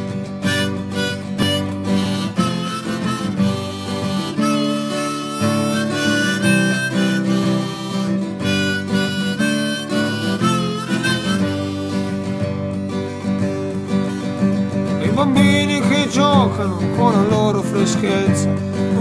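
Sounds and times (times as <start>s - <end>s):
harmonica playing: 0.0s - 16.1s
strummed acoustic guitar: 0.0s - 19.0s.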